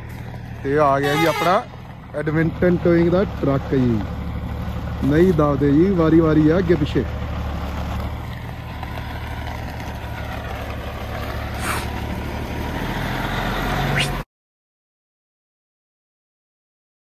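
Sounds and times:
diesel truck engine running: 0.0 - 14.2
brief high hiss: 11.6 - 12.0, 13.9 - 14.2.

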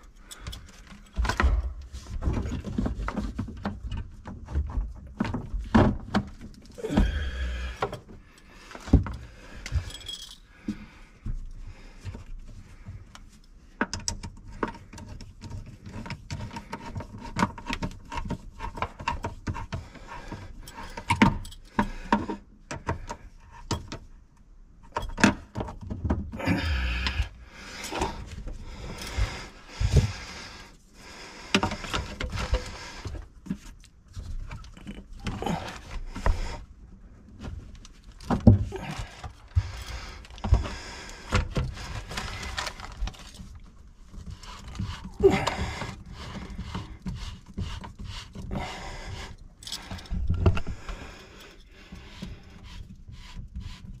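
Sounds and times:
tools clinking and clanking: 9.1 - 10.5.

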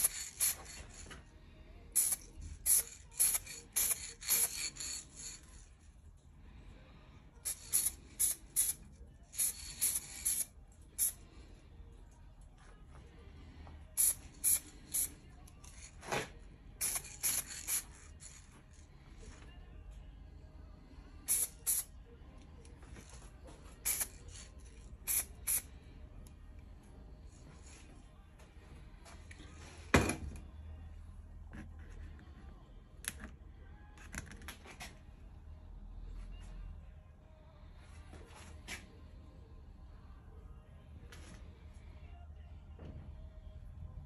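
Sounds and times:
spray can hissing in bursts: 0.0 - 1.1, 2.0 - 5.4, 7.4 - 8.8, 9.4 - 11.2, 13.9 - 15.1, 16.8 - 18.4, 21.2 - 21.9, 23.8 - 25.7.

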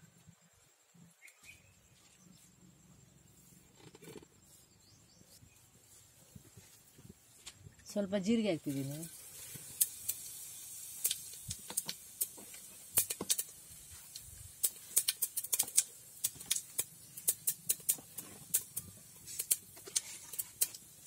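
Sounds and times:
seeds crackling in hot oil: 7.8 - 21.0.

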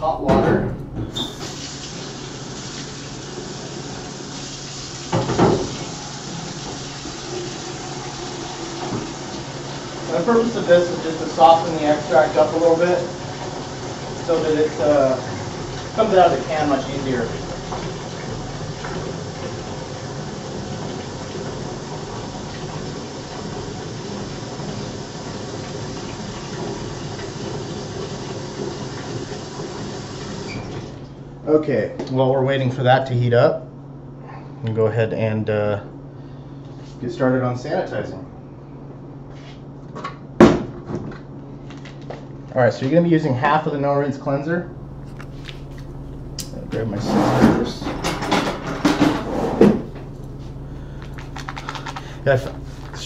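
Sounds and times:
tap water running into container: 1.1 - 31.0, 44.7 - 53.0
can knocking and splashing: 51.0 - 53.0.

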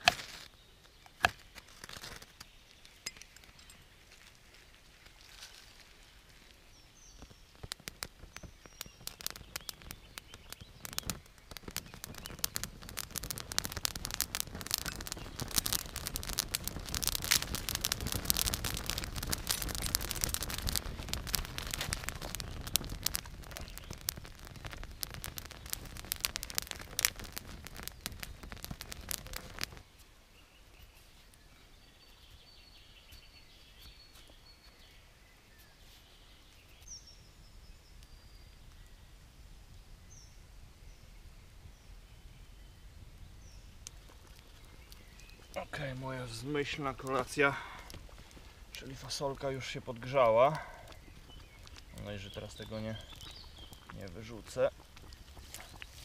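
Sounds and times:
grass fire crackling: 0.0 - 56.0
faint bird chirps: 29.2 - 39.2.

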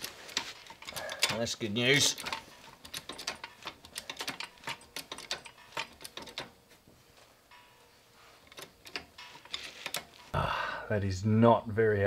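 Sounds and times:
jack pumping clicks: 0.0 - 6.6, 8.4 - 10.3.

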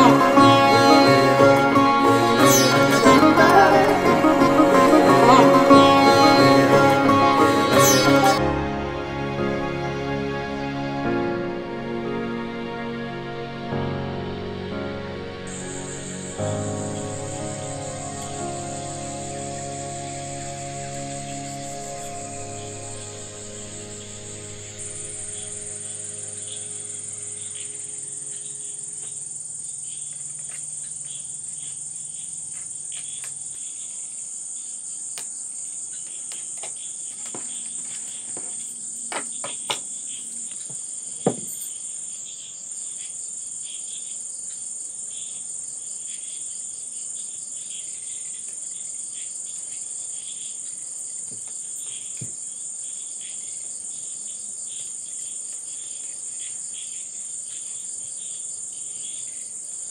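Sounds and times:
crickets chirping: 15.5 - 59.9.

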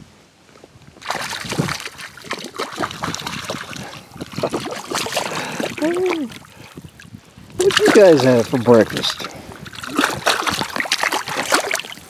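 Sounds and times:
fish splashing at water surface: 1.0 - 12.0.

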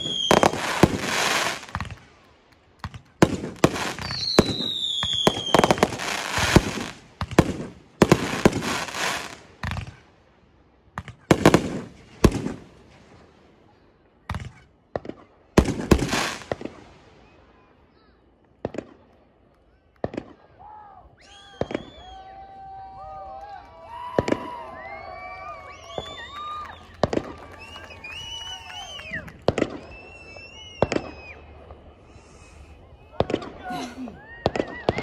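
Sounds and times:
firework whistle falling in pitch: 0.0 - 1.7, 21.1 - 23.1, 23.9 - 35.0
fireworks bangs: 0.0 - 10.2, 11.0 - 13.4, 14.2 - 17.4, 21.4 - 22.1, 24.0 - 35.0.

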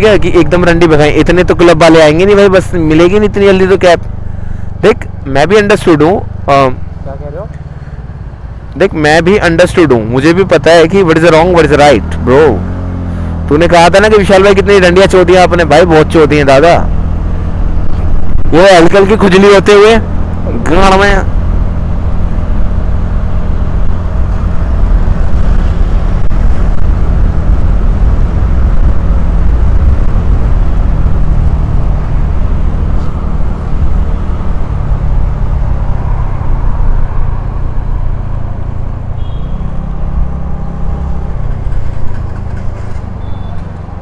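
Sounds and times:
vehicle engine running: 0.0 - 44.0
wind rumble on microphone: 17.1 - 18.7, 21.2 - 39.0.

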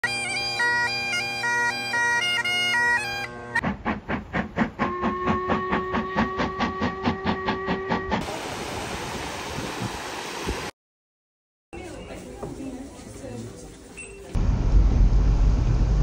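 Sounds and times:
bagpipe music: 0.0 - 3.6
steam locomotive chuffing: 3.6 - 8.6
steam whistle blast: 4.8 - 8.5.

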